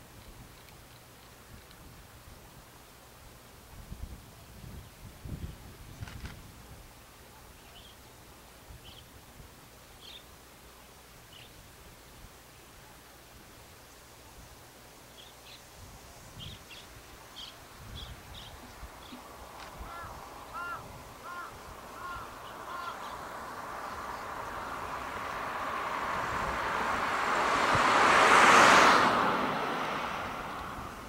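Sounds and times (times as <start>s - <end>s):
small birds chirping: 15.1s - 15.7s, 16.3s - 25.9s
vehicle passing close by: 18.4s - 31.0s
crow cawing: 19.8s - 23.4s.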